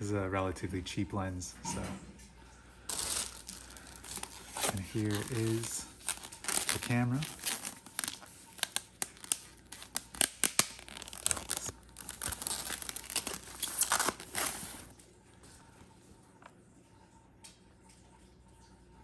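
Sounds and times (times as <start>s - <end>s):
paper rustling and crinkling: 2.9s - 15.0s.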